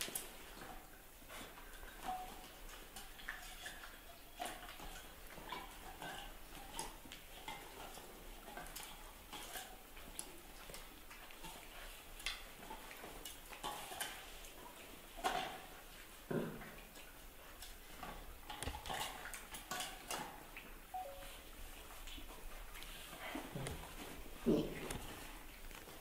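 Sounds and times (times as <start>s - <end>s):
animals scuffling on tiled floor: 0.0s - 26.0s.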